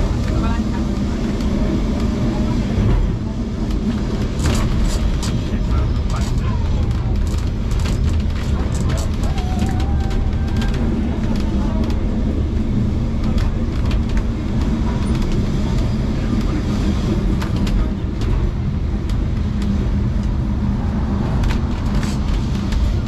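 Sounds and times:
tram rumbling on rails: 0.0s - 23.0s
sharp clicks and rattles: 2.8s - 20.4s.

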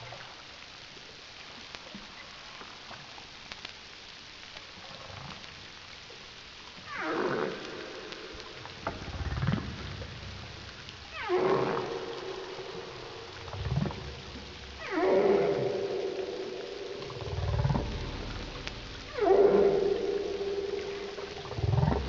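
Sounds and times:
whale song underwater: 6.7s - 22.0s.

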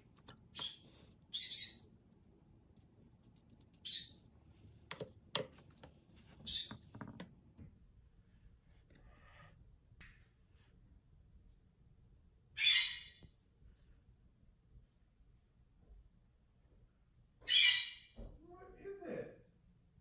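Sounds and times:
brush tapping: 4.6s - 7.6s
paintbrush scratching on paper: 8.2s - 9.6s.

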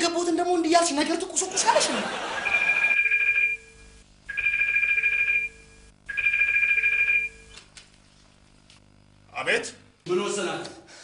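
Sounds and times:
telephone ringing: 2.1s - 7.6s.

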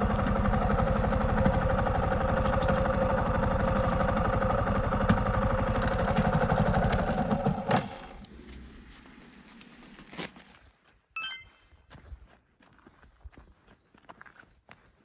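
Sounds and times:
engine idling: 0.0s - 8.1s.

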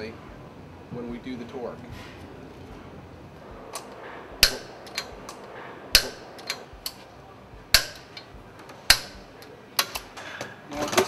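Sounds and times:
torque wrench clicking: 7.7s - 10.2s.

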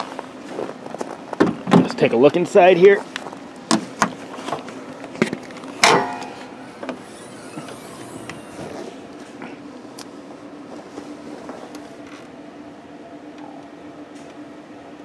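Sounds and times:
metal hood latch clank: 5.8s - 6.6s.

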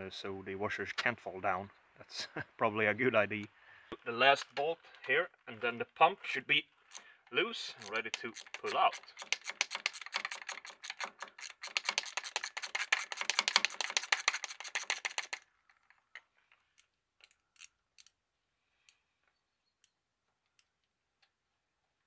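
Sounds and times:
hand ratchet clicking: 6.9s - 15.5s.

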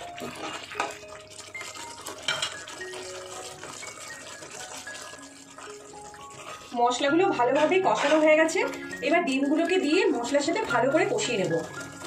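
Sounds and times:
soft background music: 0.0s - 12.0s
metal spatula scraping pan: 4.4s - 12.0s.

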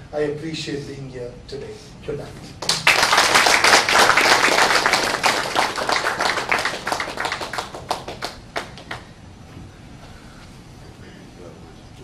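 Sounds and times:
audience applauding: 2.6s - 9.1s.

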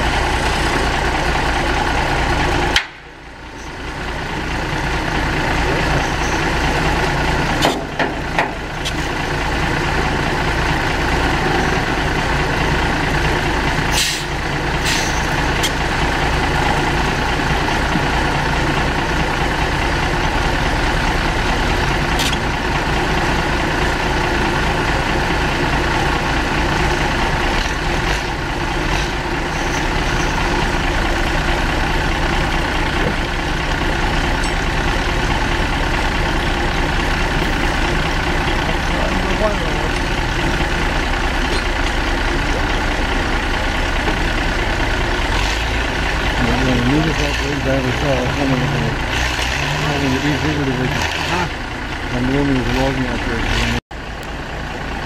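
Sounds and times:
heavy engine idling: 0.0s - 55.0s.

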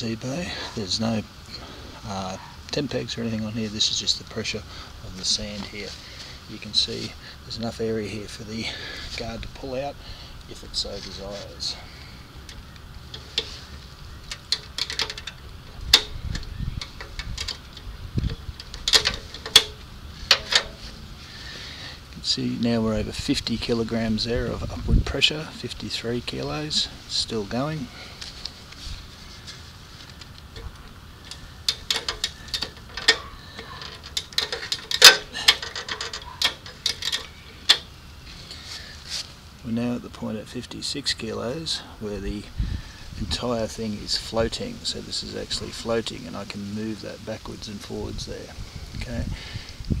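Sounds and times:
low rumbles: 0.0s - 38.6s.

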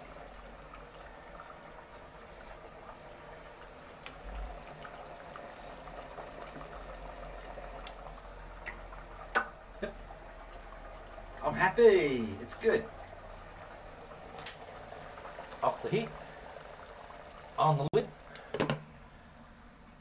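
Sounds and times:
curry bubbling in a pan: 0.0s - 20.0s.

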